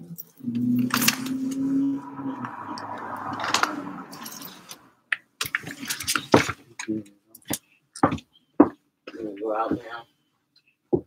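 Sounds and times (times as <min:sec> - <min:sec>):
sharp knocks and clicks: 0:05.1 - 0:08.8
rustling handling noise: 0:05.4 - 0:06.9.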